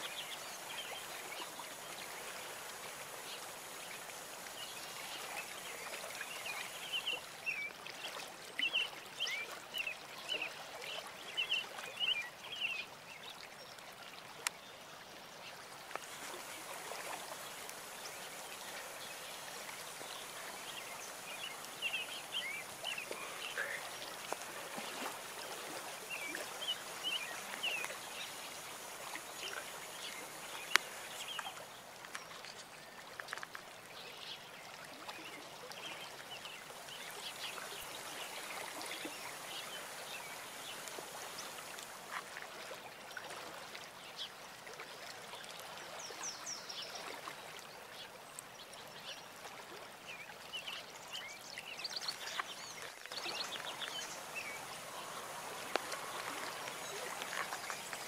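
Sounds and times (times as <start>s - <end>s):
water trickling and splashing: 0.0s - 58.0s.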